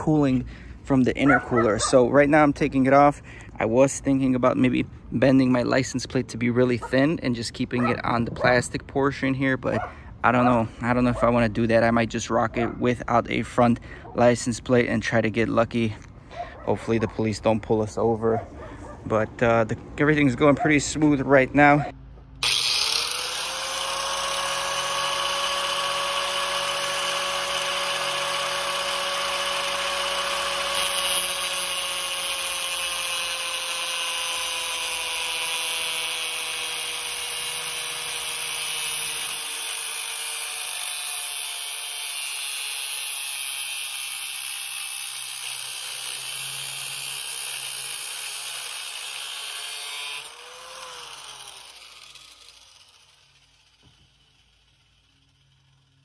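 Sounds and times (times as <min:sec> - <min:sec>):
angle grinder cutting metal pipe: 0:22.4 - 0:56.0.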